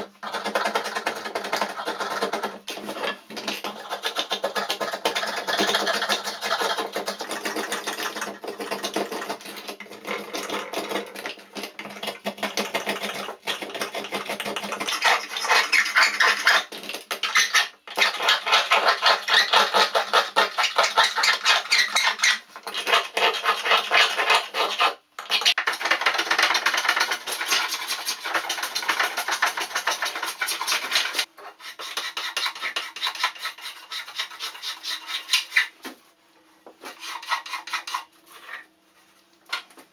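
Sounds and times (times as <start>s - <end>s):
spokeshave scraping wood: 36.6s - 39.6s.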